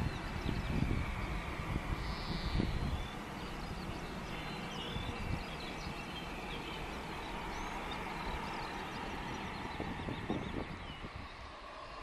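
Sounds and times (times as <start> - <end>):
birds chirping: 0.0 - 12.0
wind buffeting microphone: 0.0 - 12.0.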